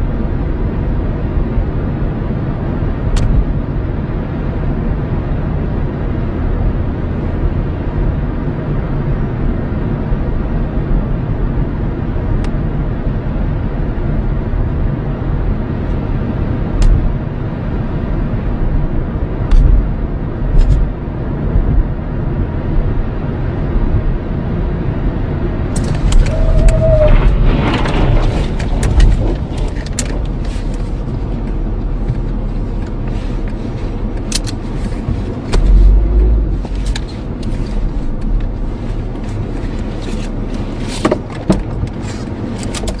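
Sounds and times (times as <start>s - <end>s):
road and engine rumble inside car: 0.0s - 43.0s
sharp clicks and knocks: 27.5s - 33.6s, 42.6s - 43.0s
heavy low thumps: 35.0s - 36.8s.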